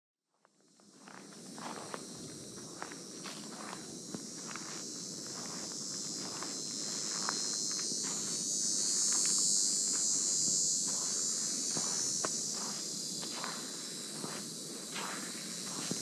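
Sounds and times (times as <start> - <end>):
high-pitched insect chorus: 0.4 - 16.0
footsteps on sand: 0.8 - 16.0.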